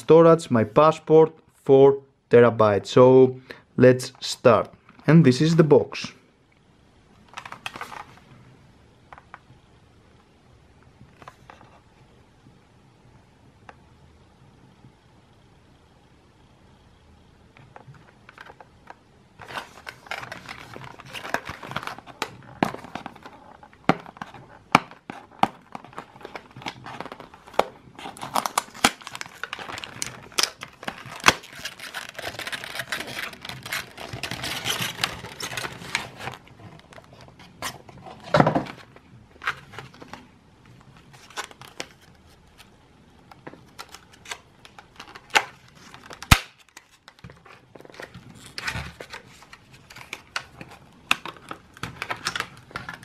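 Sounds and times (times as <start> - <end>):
packaging rustling and crinkling: 7.3 - 8.3, 17.8 - 53.0.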